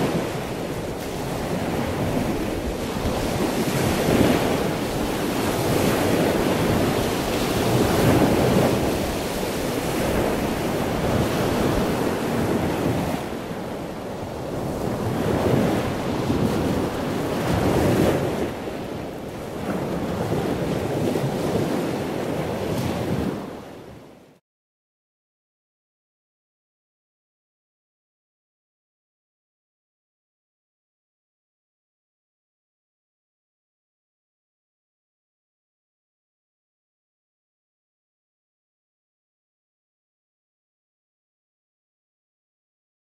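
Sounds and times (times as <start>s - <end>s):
wind buffeting microphone: 0.0s - 24.2s
ocean surf breaking: 0.0s - 24.4s.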